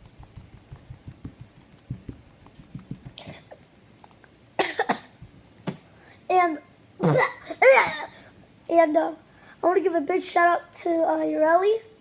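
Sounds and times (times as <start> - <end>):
person coughing: 4.6 - 5.8, 7.0 - 8.2.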